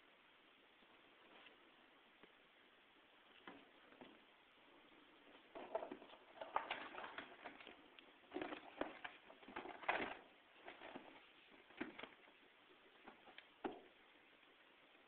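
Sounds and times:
bedding rustling: 0:05.1 - 0:13.9.

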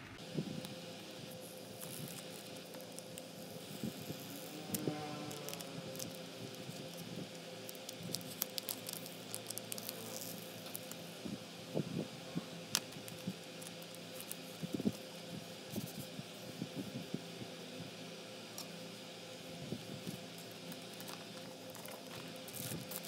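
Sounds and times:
faint steady hum: 0:00.0 - 0:23.0
plastic wrap crinkling: 0:05.2 - 0:11.0, 0:20.7 - 0:23.0.

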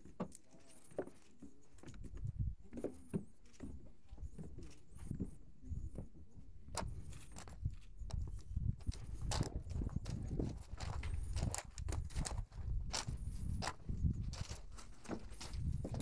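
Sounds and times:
footsteps on wooden steps: 0:00.0 - 0:16.0
footsteps crunching on gravel: 0:08.8 - 0:16.0.

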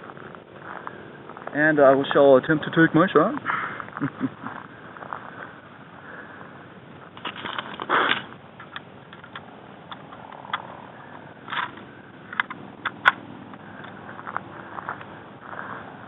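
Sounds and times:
handling rustle: 0:07.0 - 0:16.0
rifle bolt clicks and knocks: 0:11.5 - 0:13.2.

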